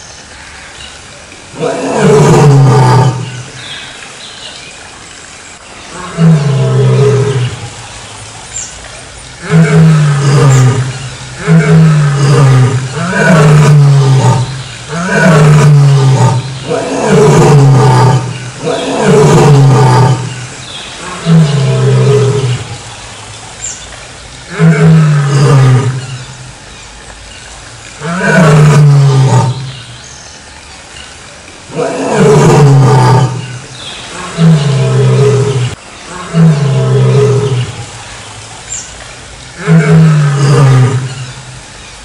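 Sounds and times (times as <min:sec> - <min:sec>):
lion roaring: 0:01.5 - 0:03.5, 0:05.9 - 0:07.7, 0:09.4 - 0:22.8, 0:24.5 - 0:26.3, 0:28.0 - 0:29.8, 0:31.7 - 0:37.9, 0:39.6 - 0:41.4.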